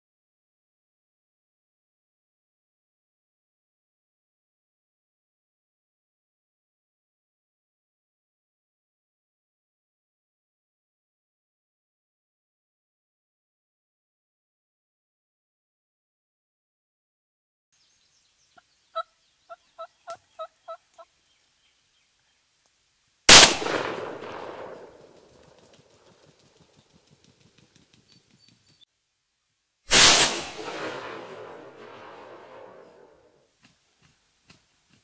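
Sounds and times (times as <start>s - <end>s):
wild turkey calling: 17.8s - 22.4s
loud echoing gunshot: 23.3s - 25.2s, 29.9s - 33.2s
wings flapping on ground: 24.8s - 28.8s.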